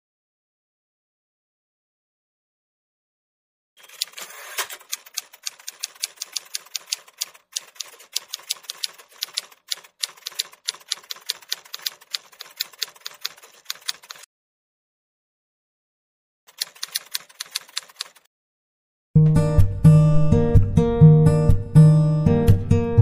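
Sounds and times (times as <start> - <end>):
keyboard typing clicks: 3.8 - 14.3, 16.5 - 18.3.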